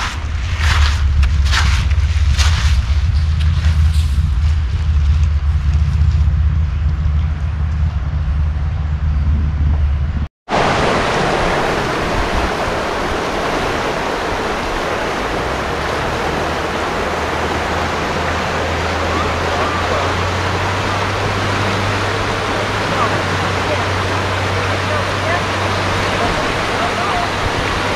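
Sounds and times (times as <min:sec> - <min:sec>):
wind rumble on microphone: 0:00.0 - 0:27.9
river rushing: 0:10.5 - 0:27.9.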